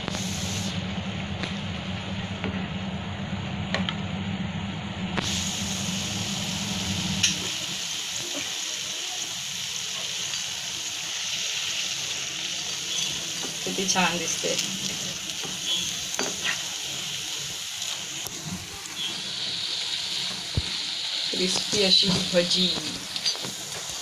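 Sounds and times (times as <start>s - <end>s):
food deep-frying in oil: 5.2s - 24.0s.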